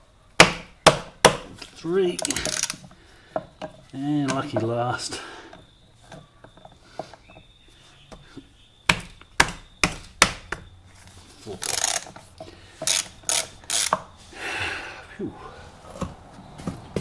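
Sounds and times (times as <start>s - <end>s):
nuts rattling: 2.1s - 3.0s, 11.4s - 14.0s
spanner metal clicks: 2.2s - 2.8s, 11.6s - 12.1s, 12.8s - 14.0s.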